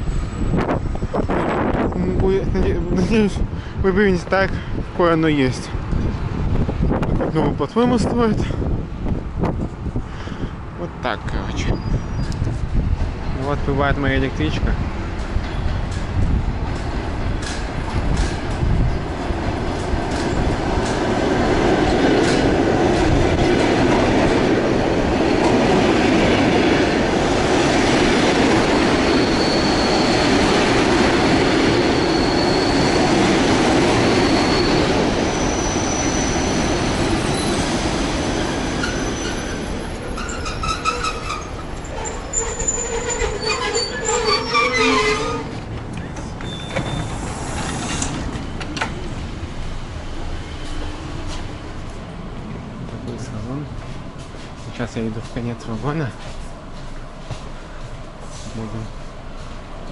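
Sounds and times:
train running and wheel noise: 0:00.0 - 0:59.9
high-pitched brake squeal: 0:11.6 - 0:12.4, 0:29.0 - 0:30.5, 0:31.4 - 0:33.2, 0:34.0 - 0:37.6, 0:38.2 - 0:45.6, 0:46.4 - 0:48.2.

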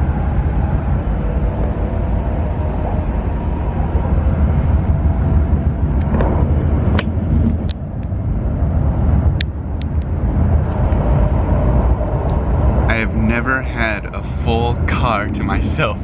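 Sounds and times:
train running low rumble: 0:00.0 - 0:16.0.

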